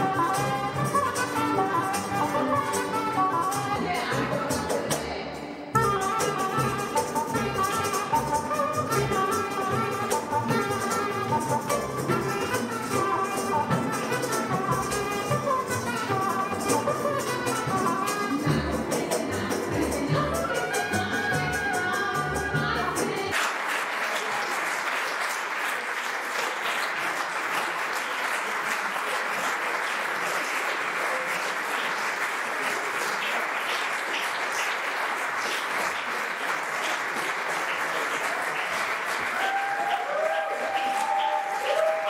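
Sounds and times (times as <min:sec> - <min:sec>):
audience applauding: 0:23.3 - 0:42.0.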